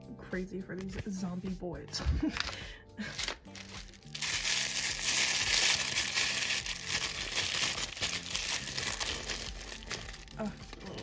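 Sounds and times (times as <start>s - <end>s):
plastic packaging crinkling: 2.3s - 11.0s.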